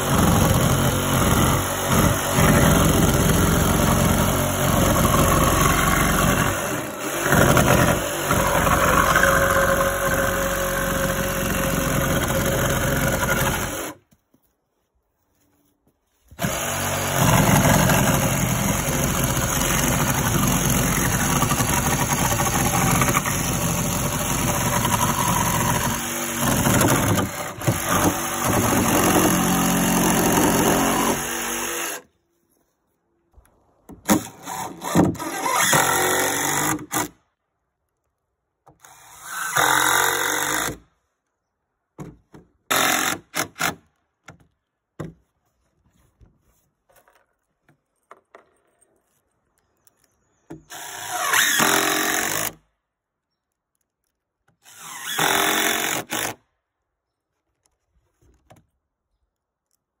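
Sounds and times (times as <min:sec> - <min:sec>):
jigsaw cutting: 0:00.0 - 0:14.0, 0:16.4 - 0:32.0, 0:34.1 - 0:37.1, 0:42.7 - 0:43.8, 0:50.7 - 0:52.6, 0:54.6 - 0:56.4
power driver driving screws into wood: 0:00.0 - 0:14.0, 0:16.4 - 0:32.1, 0:33.9 - 0:37.2, 0:38.7 - 0:40.9, 0:42.7 - 0:44.4, 0:50.5 - 0:52.7, 0:54.5 - 0:56.4.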